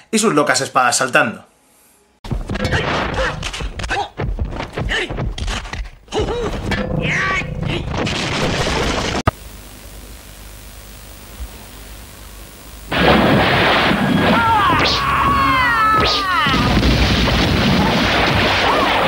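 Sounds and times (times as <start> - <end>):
fight hits and thuds: 2.3 - 6.7
steady hiss: 9.3 - 14.2.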